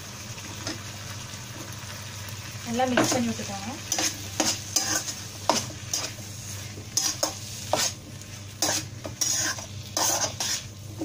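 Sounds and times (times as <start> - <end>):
food sizzling: 0.0 - 11.0
spatula scraping a pan: 3.8 - 11.0.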